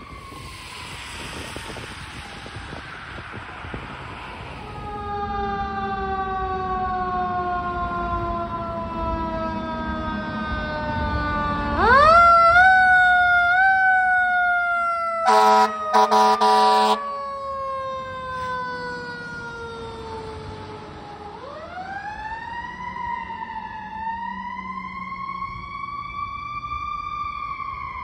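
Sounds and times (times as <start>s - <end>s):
fire truck siren wailing: 0.0s - 28.0s
air horn blasts: 15.2s - 17.1s.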